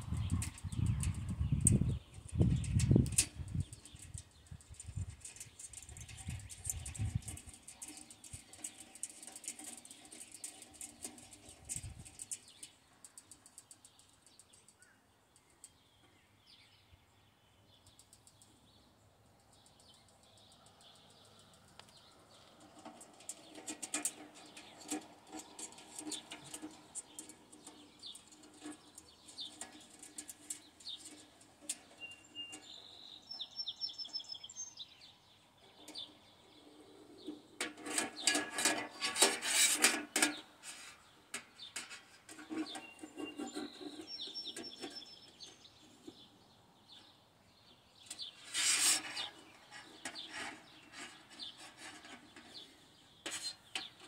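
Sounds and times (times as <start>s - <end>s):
sheet metal parts clicking: 0.0s - 15.8s, 19.4s - 32.7s, 37.2s - 45.5s
birds chirping: 0.0s - 39.0s, 40.2s - 54.0s.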